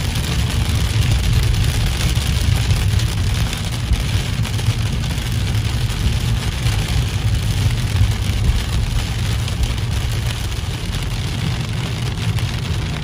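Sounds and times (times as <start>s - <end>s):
heavy rain on car roof: 0.0s - 13.0s
low rumble of car driving: 0.0s - 13.0s.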